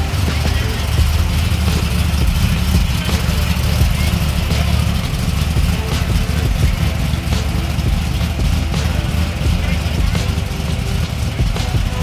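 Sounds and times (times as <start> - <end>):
background voices: 0.0 - 12.0
car engine idling: 0.0 - 12.0.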